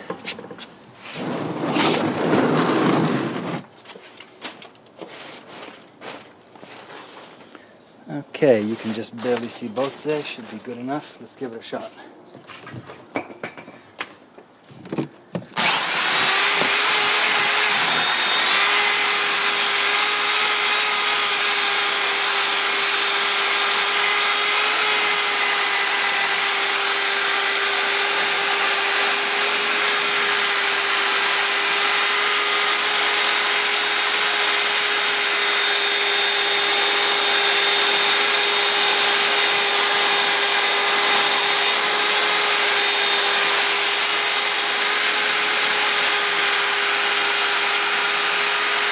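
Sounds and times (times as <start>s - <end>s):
electric drill whining: 1.2s - 3.6s, 15.6s - 48.9s.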